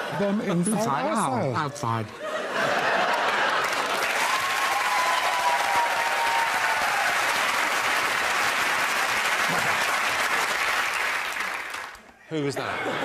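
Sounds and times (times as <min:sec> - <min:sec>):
studio audience applauding: 0:02.8 - 0:12.2.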